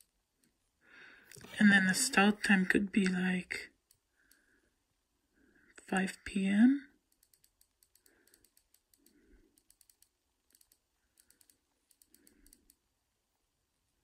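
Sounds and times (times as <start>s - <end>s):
phone scroll wheel ticks: 7.1s - 12.8s.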